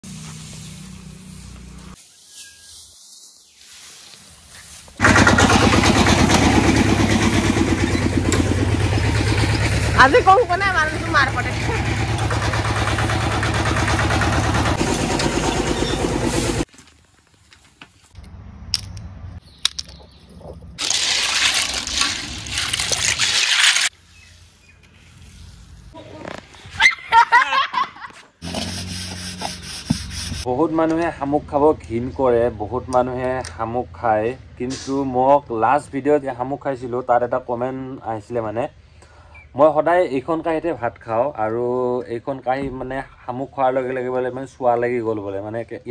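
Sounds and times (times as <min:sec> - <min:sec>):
tractor engine running: 0:05.0 - 0:16.7
water sloshing in a metal basin: 0:20.8 - 0:23.9.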